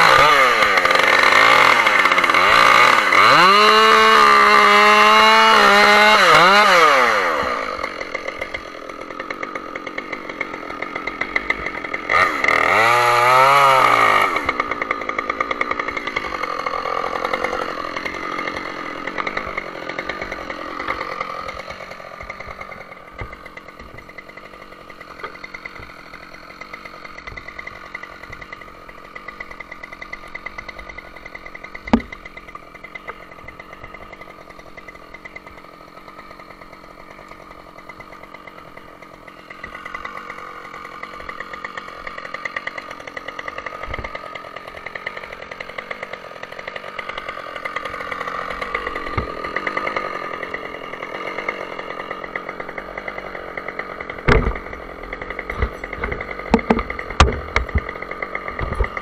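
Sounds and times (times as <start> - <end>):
chainsaw running at low speed: 0.0 - 59.0
sharp knocks: 31.8 - 32.2, 54.2 - 54.8, 55.4 - 57.9.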